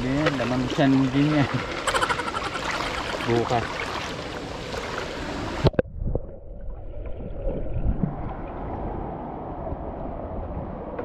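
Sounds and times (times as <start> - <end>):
water rushing along a canal: 0.0 - 5.8
wind rumbling on microphone: 4.4 - 11.0.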